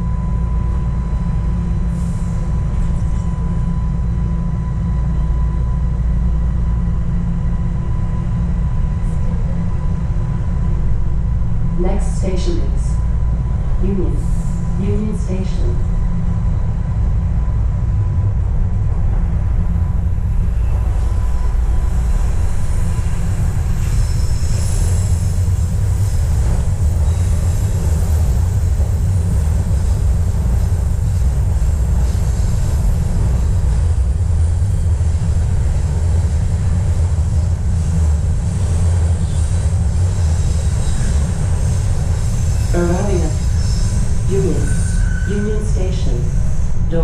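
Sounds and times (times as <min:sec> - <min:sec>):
subway train wheels rumbling: 0:00.0 - 0:47.0
high wheel squeal: 0:20.5 - 0:28.7, 0:40.2 - 0:45.5.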